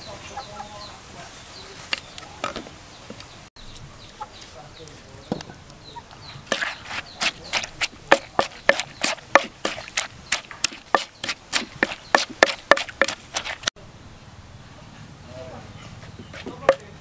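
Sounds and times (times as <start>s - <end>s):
wooden pestle pounding in mortar: 6.5s - 13.7s, 16.2s - 17.0s.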